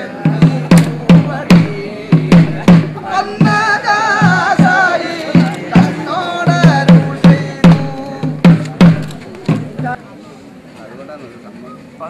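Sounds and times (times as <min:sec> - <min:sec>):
person singing folk melody: 0:00.0 - 0:10.0
ringing low drum beats: 0:00.0 - 0:10.0.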